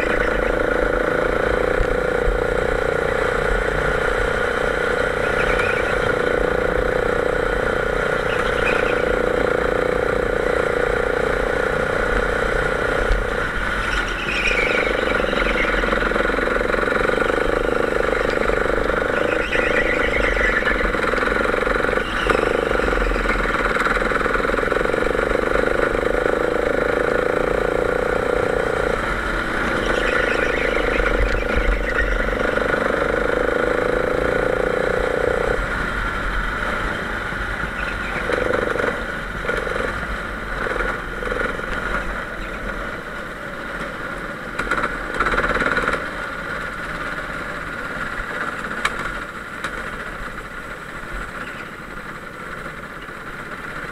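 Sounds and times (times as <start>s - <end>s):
go-kart engine running hard: 0.0s - 53.9s
faint high squeals: 13.8s - 24.1s, 29.6s - 33.0s.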